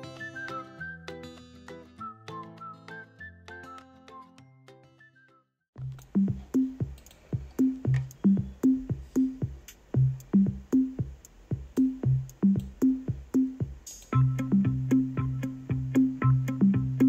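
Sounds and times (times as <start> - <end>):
drum machine beat: 5.8 - 17.0
low synth bass line: 14.1 - 17.0.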